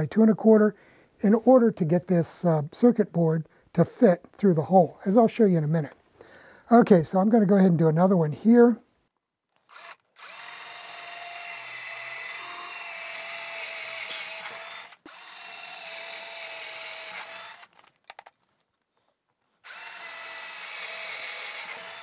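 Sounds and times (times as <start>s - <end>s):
cordless drill whining: 9.5s - 17.9s, 19.6s - 22.0s.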